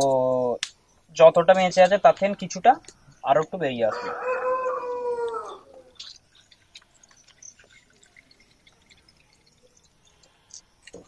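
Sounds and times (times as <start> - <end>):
oil dripping into bowl: 4.6 - 11.0.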